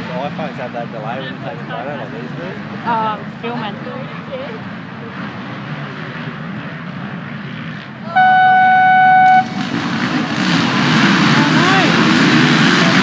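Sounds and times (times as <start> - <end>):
dirt bikes idling: 0.0 - 13.0
dirt bikes revving away: 5.0 - 13.0
loud horn blast: 8.0 - 10.5.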